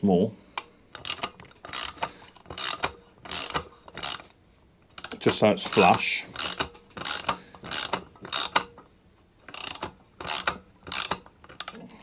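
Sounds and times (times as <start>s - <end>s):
ratchet wrench clicking: 0.9s - 4.3s, 5.0s - 8.7s, 9.5s - 11.8s.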